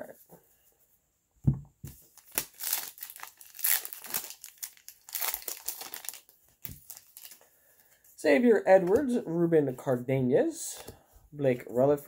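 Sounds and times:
foil wrapper crinkling and tearing: 2.1 - 7.4.

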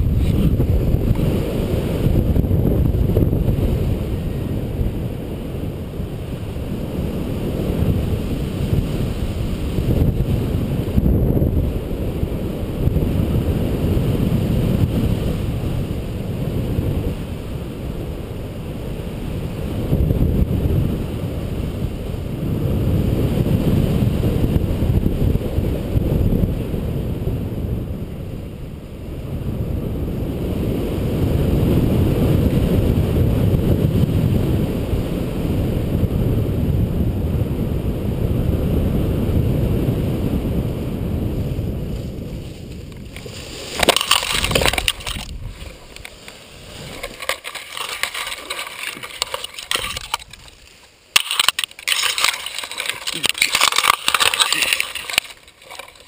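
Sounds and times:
wind rushing over microphone: 0.0 - 56.0
twigs crackling and snapping: 42.5 - 56.0.

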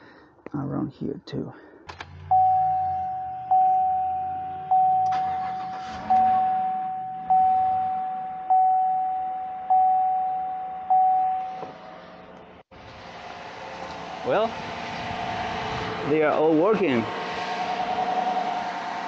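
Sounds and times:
engine running: 1.9 - 8.0, 11.6 - 19.0
dashboard warning chime: 2.3 - 11.9, 17.7 - 18.6.

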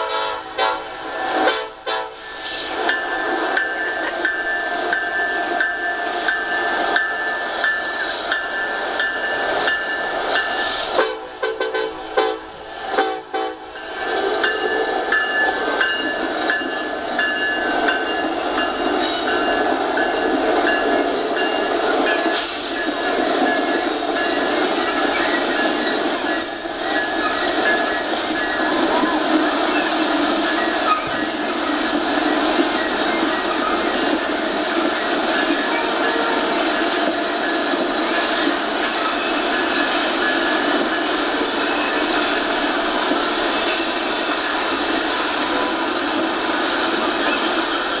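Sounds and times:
train horn blasts: 0.0 - 2.2, 11.0 - 13.7
freight train rolling past: 0.0 - 48.0.

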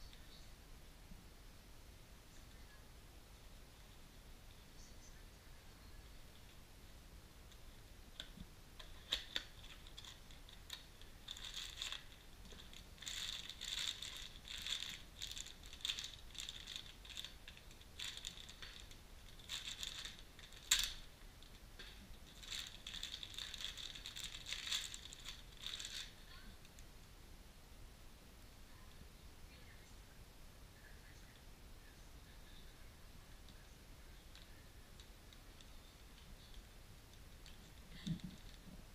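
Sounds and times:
plastic bag crinkling: 8.2 - 26.8, 37.4 - 38.8.

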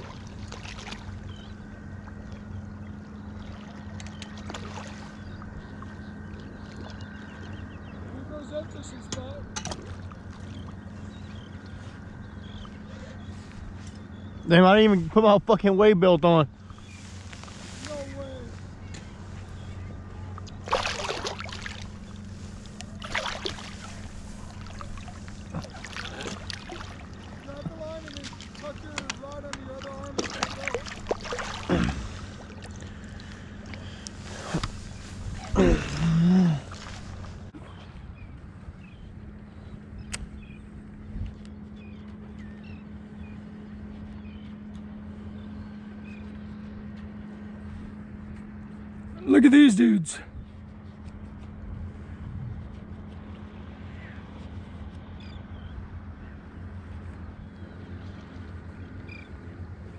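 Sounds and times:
fish thrashing water splashing: 0.0 - 1.1, 20.6 - 27.5, 29.8 - 32.9
low motor drone: 0.0 - 59.9
steady low hum: 0.0 - 59.9
faint bird chirps: 10.4 - 14.6.

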